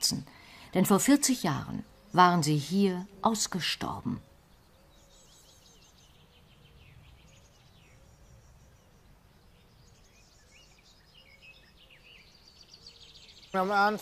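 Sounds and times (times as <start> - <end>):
bird trills and chirps: 0.4 - 14.0.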